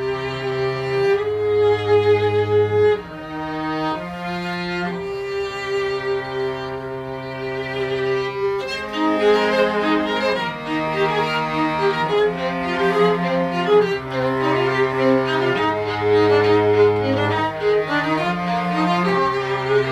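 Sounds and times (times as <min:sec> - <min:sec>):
cello low notes: 0:00.0 - 0:19.9
violins: 0:00.0 - 0:19.9.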